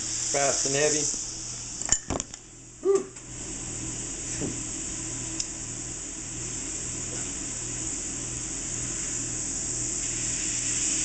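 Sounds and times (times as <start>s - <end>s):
steak sizzling in skillet: 0.0s - 1.8s, 7.7s - 11.0s.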